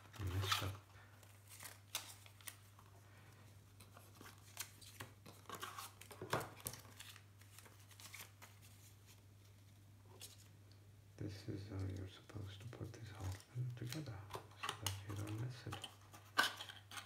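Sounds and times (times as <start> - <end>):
paper rustling: 0.0 - 2.9, 3.7 - 10.5
faint low hum: 0.0 - 17.0.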